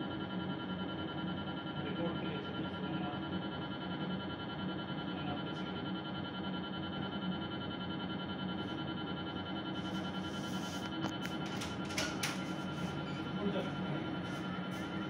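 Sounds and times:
mri scanner droning: 0.0 - 15.0.

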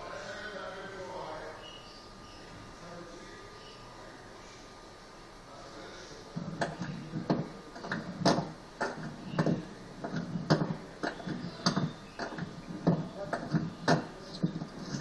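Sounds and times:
sharp uneven knocks: 6.4 - 15.0.

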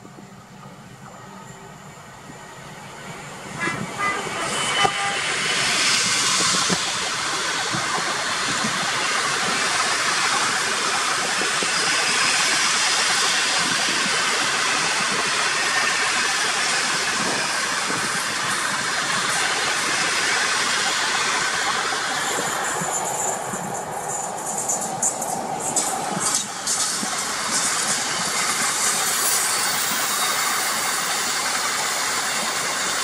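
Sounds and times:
diesel locomotive engine passing: 0.0 - 33.0
train wheels rolling on rails: 0.0 - 33.0.

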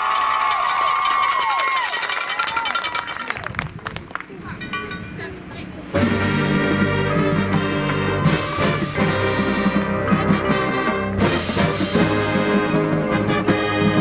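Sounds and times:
percussion strikes: 1.9 - 3.4, 4.5 - 14.0
low bass notes: 5.9 - 14.0
marching band brass chords: 5.9 - 14.0.

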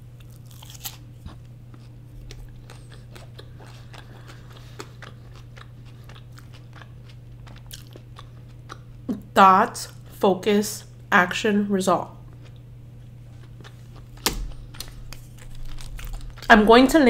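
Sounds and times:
chewing with mouth clicks: 0.2 - 9.1, 12.2 - 16.5.

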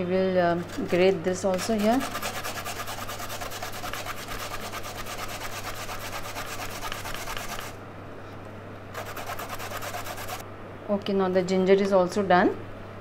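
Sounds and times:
ginger scraping on metal grater: 0.5 - 7.8, 9.0 - 10.4.

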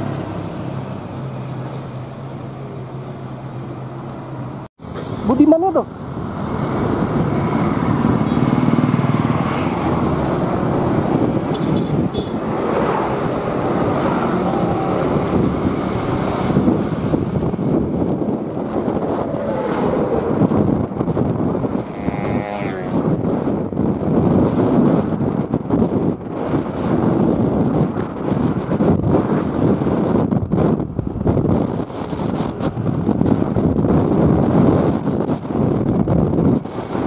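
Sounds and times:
road and wind noise: 0.0 - 37.0
small motorcycle engine: 6.4 - 10.5, 21.8 - 23.4.

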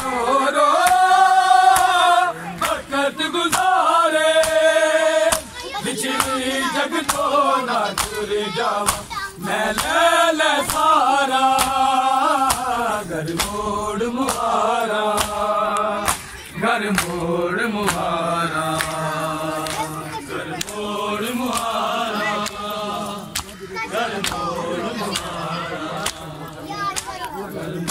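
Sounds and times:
men chanting in chorus: 0.0 - 27.9
hands slapping chests: 0.8 - 2.8, 3.5 - 3.8, 4.4 - 4.7, 5.3 - 6.4, 7.0 - 9.1, 9.7 - 10.0, 10.6 - 13.6, 14.2 - 22.7, 23.3 - 23.6, 24.2 - 24.5, 25.1 - 25.4, 26.0 - 26.3.

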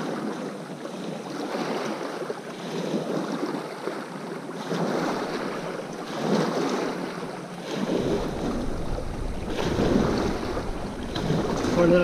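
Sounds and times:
waves lapping against rocks: 0.0 - 12.0
wind rumbling on microphone: 4.6 - 12.0.

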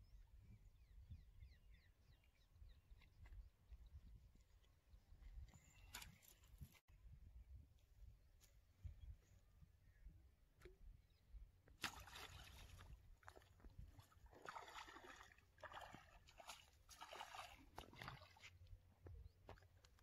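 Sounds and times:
fish splashing in water: 11.8 - 13.5.

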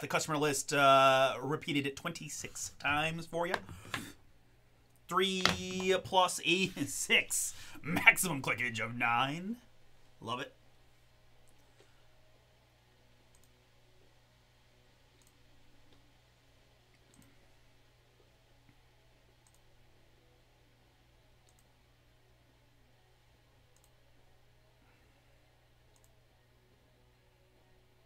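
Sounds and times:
low steady hum: 0.0 - 28.0
faint mouse clicks: 13.3 - 13.6, 15.2 - 16.0, 19.4 - 19.6, 21.4 - 21.7, 23.7 - 24.0, 25.9 - 26.2.

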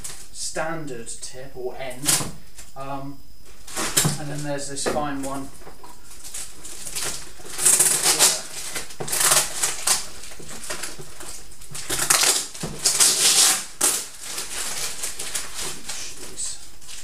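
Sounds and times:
cardboard scraping: 3.4 - 17.0
packing paper crinkling: 3.5 - 17.0.

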